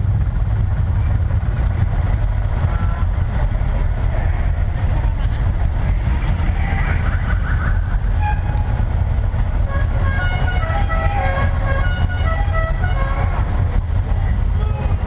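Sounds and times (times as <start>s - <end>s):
car engines rumbling: 0.0s - 15.0s
high-pitched car horn toots: 8.1s - 8.7s, 9.7s - 13.5s.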